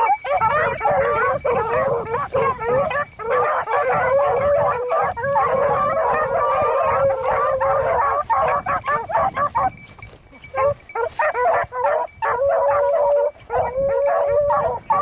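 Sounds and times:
dogs baying: 0:00.0 - 0:15.0.

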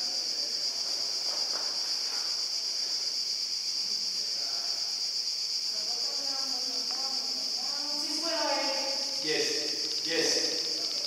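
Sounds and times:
high-pitched insect drone: 0:00.0 - 0:11.0.

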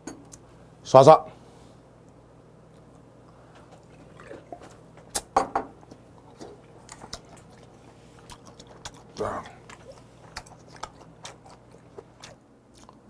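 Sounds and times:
chewing with wet clicks: 0:02.0 - 0:13.0
person drinking: 0:03.3 - 0:12.2
glass set down on table: 0:05.4 - 0:05.7.

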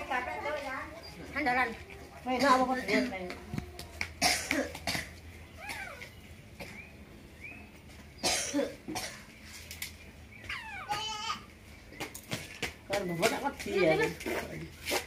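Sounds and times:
person coughing: 0:04.2 - 0:05.1, 0:08.2 - 0:09.2
high squeaky calls: 0:10.4 - 0:11.3.

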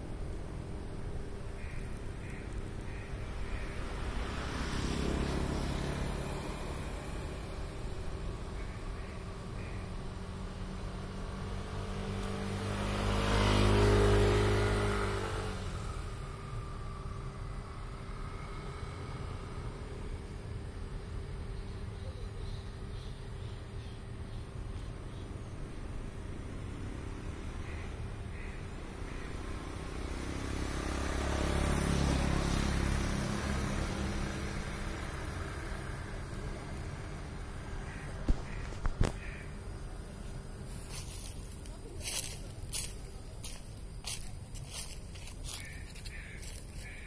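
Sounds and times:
low engine hum: 0:00.0 - 0:47.0
vehicle passing by: 0:00.0 - 0:47.0
faint bird chirps: 0:21.4 - 0:25.7.

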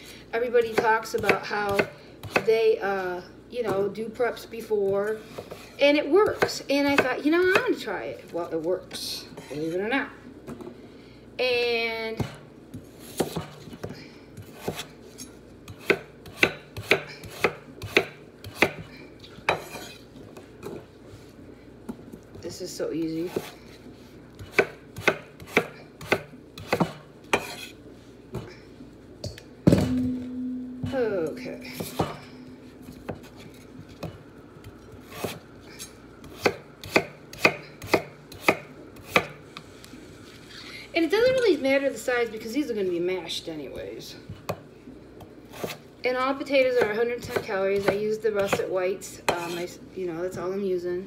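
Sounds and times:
knife chopping on wooden board: 0:13.1 - 0:13.9, 0:14.5 - 0:14.9, 0:15.7 - 0:18.9, 0:24.4 - 0:27.7, 0:31.8 - 0:32.2, 0:35.0 - 0:35.4, 0:36.2 - 0:39.4, 0:46.8 - 0:48.7.

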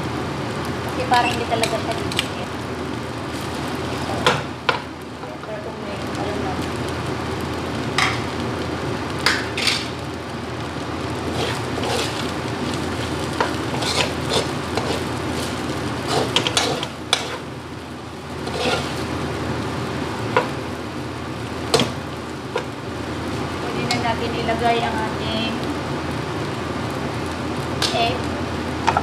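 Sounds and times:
food sizzling: 0:00.0 - 0:29.0
spatula scraping metal wok: 0:11.2 - 0:12.4, 0:13.3 - 0:17.5, 0:18.4 - 0:19.1.

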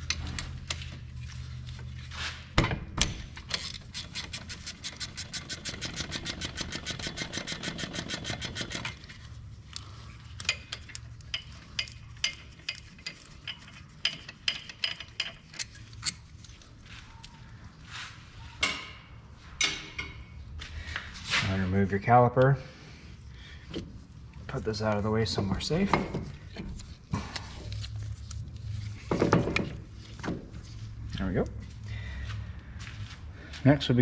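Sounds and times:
ratchet clicking rapidly: 0:03.6 - 0:09.0
metallic clicks and knocks: 0:10.4 - 0:16.2.

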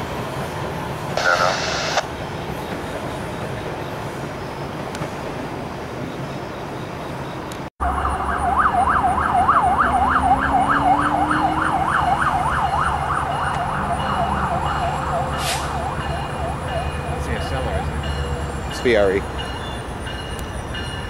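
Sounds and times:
diesel locomotive rumble: 0:07.5 - 0:21.0
emergency siren yelping: 0:07.8 - 0:17.2.

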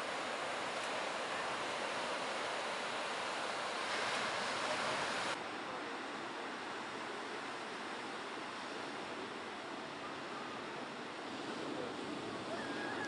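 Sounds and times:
ocean waves breaking: 0:00.0 - 0:05.4, 0:06.4 - 0:13.0.

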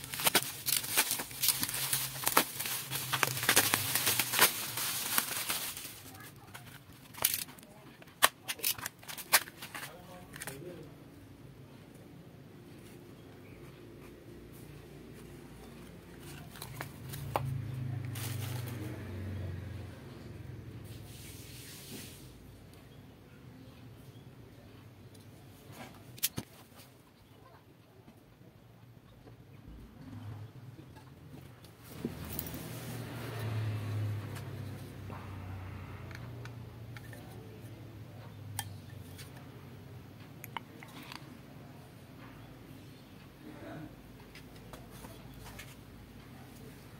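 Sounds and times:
cardboard rustling: 0:00.0 - 0:10.6.

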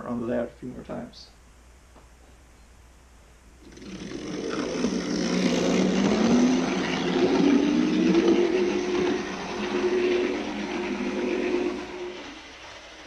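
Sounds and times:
model train motor whining: 0:03.6 - 0:13.0
wheels rumbling on rails: 0:03.7 - 0:13.0.

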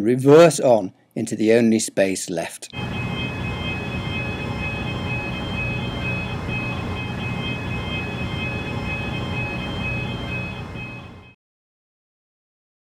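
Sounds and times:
car engine low rumble: 0:02.8 - 0:11.2
high-pitched electronic tone: 0:02.8 - 0:11.4.

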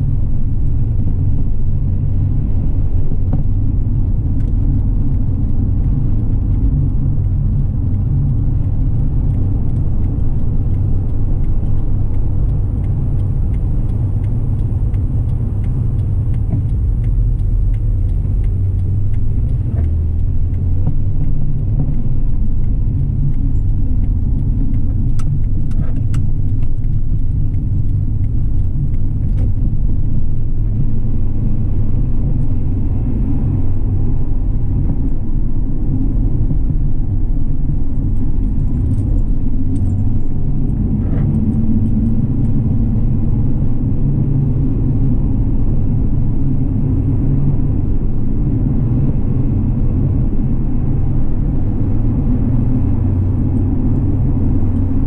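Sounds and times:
car engine and road rumble: 0:00.0 - 0:55.0
faint ticks: 0:05.8 - 0:29.7, 0:38.4 - 0:42.7.

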